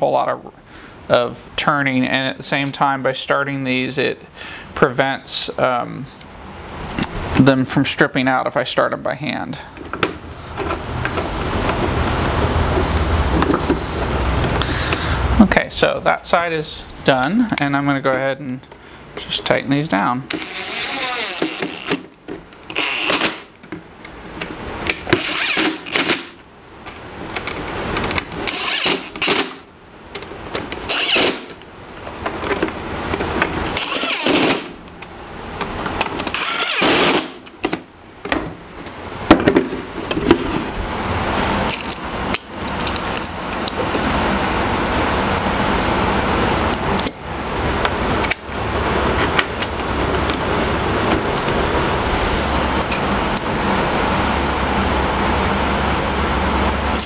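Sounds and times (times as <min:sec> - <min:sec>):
cordless drill driving screws: 0:20.3 - 0:22.1, 0:22.7 - 0:23.5, 0:25.1 - 0:26.4, 0:28.4 - 0:29.6, 0:30.8 - 0:31.6, 0:33.8 - 0:34.7, 0:36.2 - 0:37.4.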